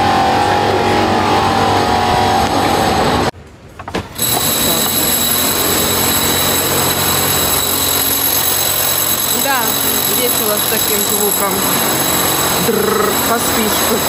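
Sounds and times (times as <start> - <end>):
high drill whine: 4.2 - 14.0
power drilling: 4.2 - 14.0.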